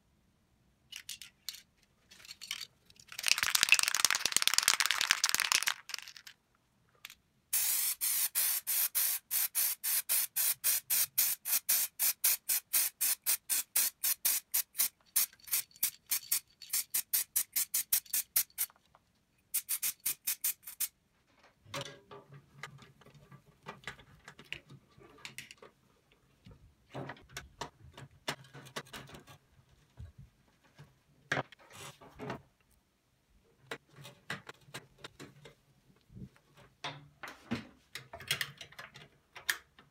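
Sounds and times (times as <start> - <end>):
spray can hissing: 7.5 - 18.7, 19.5 - 20.9.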